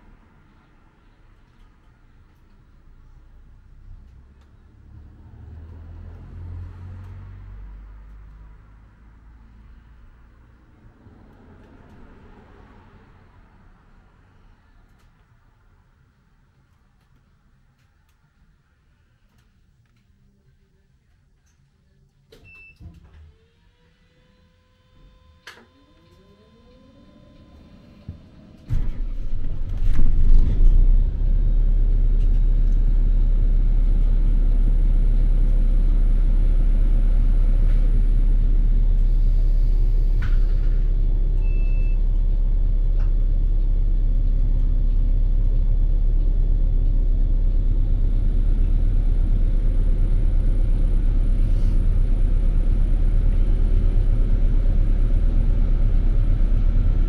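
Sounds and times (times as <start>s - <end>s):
bus driving rumble: 0.0s - 19.2s, 25.0s - 57.0s
faint rising whine: 23.4s - 57.0s.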